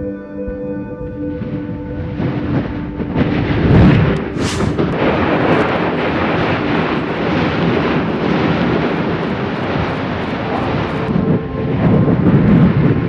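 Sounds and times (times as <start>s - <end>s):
deep volcanic blast: 1.3s - 13.0s
ash and gas rushing: 3.8s - 11.1s
sharp hiss: 4.3s - 4.8s.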